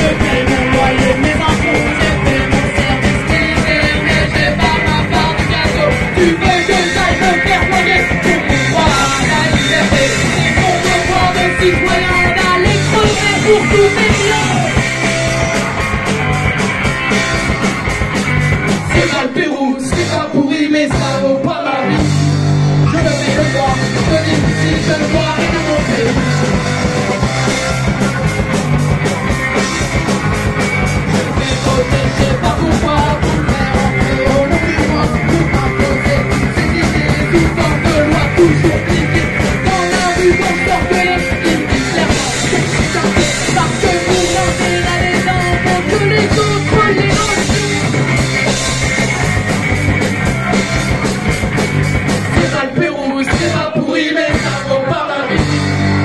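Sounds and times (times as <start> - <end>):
people singing into microphones: 0.0 - 15.7, 18.9 - 22.1, 31.0 - 48.0, 52.3 - 56.0
bass guitar: 0.0 - 56.0
drum kit: 0.0 - 56.0
electric guitar: 0.0 - 56.0.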